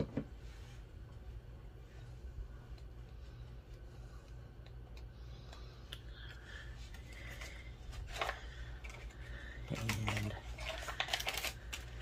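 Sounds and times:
steady low hum: 0.0 - 12.0
paper and craft supplies handled: 6.9 - 12.0.

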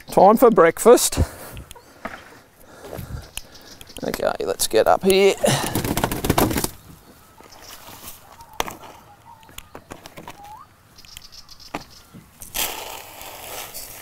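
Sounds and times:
hens chirping softly: 1.1 - 5.4, 6.6 - 12.2.

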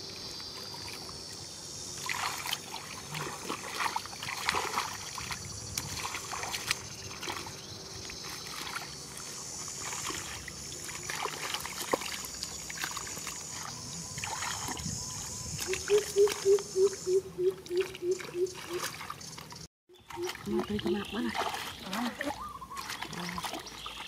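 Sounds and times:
water trickling: 0.0 - 24.0
hands splashing in shallow water: 2.0 - 14.8, 17.7 - 24.0.

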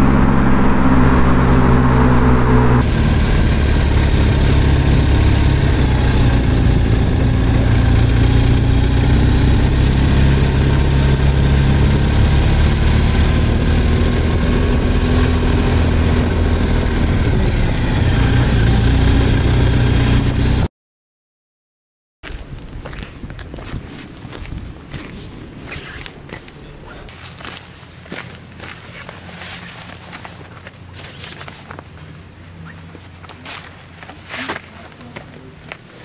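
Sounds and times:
motorcycle engine running: 0.0 - 20.7
wind and road noise: 0.0 - 20.7, 22.2 - 36.0.

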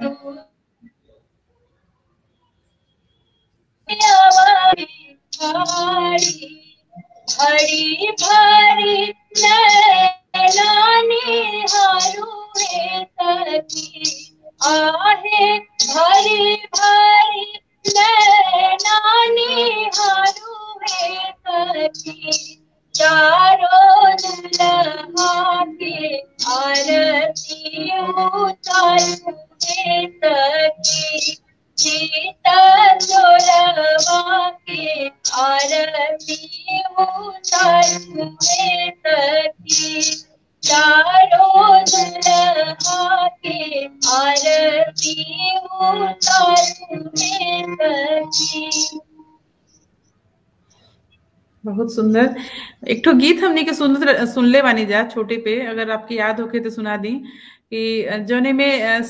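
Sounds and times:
woman singing folk song: 3.9 - 49.0.

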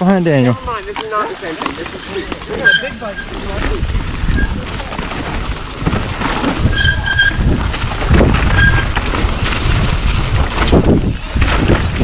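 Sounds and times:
bike rattling over bumps: 0.0 - 12.0
tyres rumbling over dirt and leaves: 0.0 - 12.0
wind buffeting microphone: 2.4 - 12.0.

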